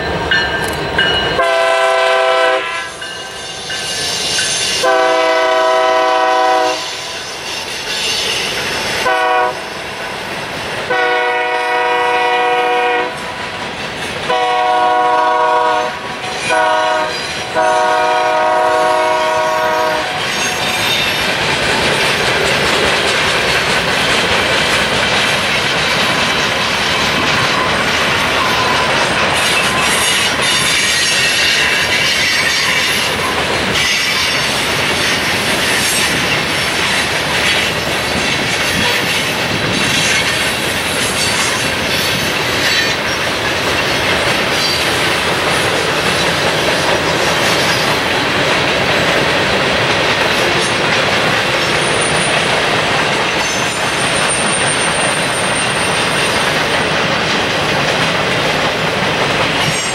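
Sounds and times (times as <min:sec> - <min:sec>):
train wheels rumbling on rail: 0:00.0 - 0:59.9
high wheel squeal: 0:06.7 - 0:09.0, 0:20.2 - 0:21.3, 0:26.3 - 0:45.0.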